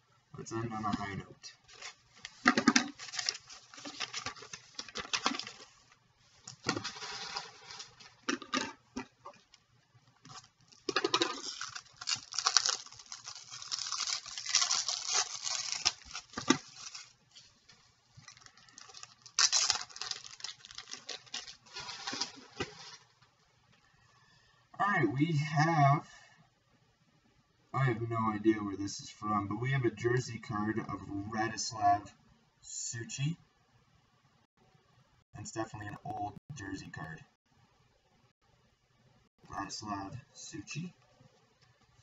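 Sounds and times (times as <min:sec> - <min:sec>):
plastic rustling and scraping: 0:01.6 - 0:09.6, 0:10.2 - 0:23.3.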